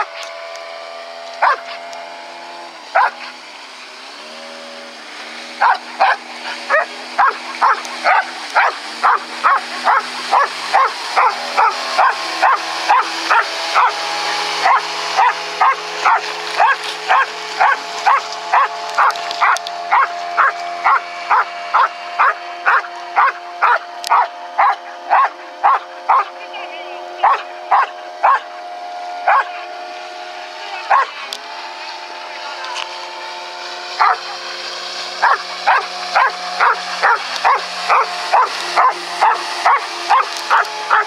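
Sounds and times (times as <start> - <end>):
steady hum: 0.0 - 41.0
dog barking: 1.4 - 1.8, 3.0 - 3.3, 5.6 - 14.0, 14.6 - 26.3, 27.2 - 28.5, 29.3 - 29.6, 30.9 - 31.2, 34.0 - 34.2, 35.2 - 41.0.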